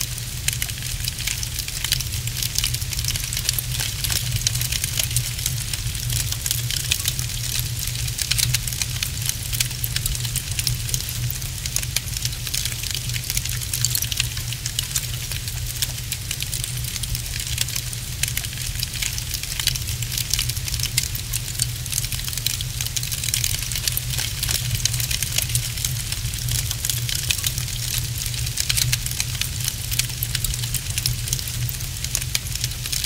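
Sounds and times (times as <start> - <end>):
wood fire crackling: 0.0 - 33.0.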